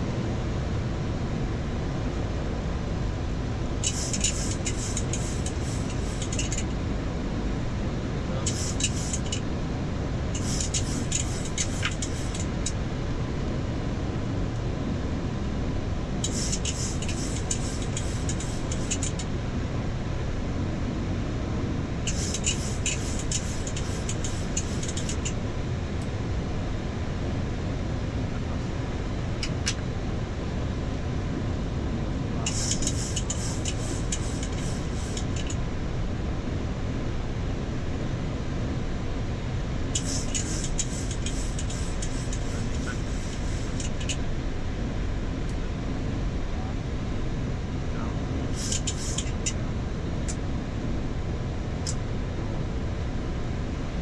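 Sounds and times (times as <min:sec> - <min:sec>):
airflow and engine noise in cockpit: 0:00.0 - 0:54.0
high crackly hiss bursts: 0:03.8 - 0:06.6, 0:08.5 - 0:09.4, 0:10.4 - 0:12.6, 0:16.2 - 0:19.2, 0:22.1 - 0:25.3, 0:32.5 - 0:35.6, 0:40.0 - 0:44.2, 0:48.6 - 0:49.5.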